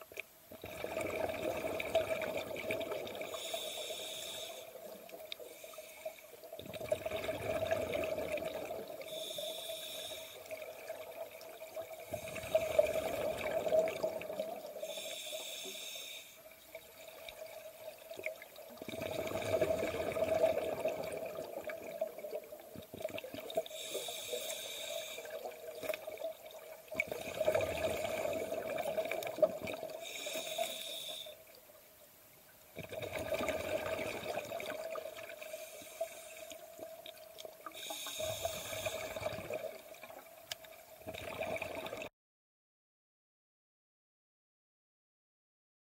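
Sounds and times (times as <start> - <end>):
bubbling exhalations underwater: 0.6 - 3.3, 6.6 - 9.0, 12.2 - 14.6, 18.8 - 22.3, 27.0 - 30.0, 32.8 - 35.3, 41.0 - 42.1
regulator hissing inhalation: 3.3 - 4.8, 5.4 - 6.4, 9.0 - 10.5, 14.8 - 16.4, 23.7 - 25.5, 30.0 - 31.4, 35.4 - 36.8, 37.8 - 39.3.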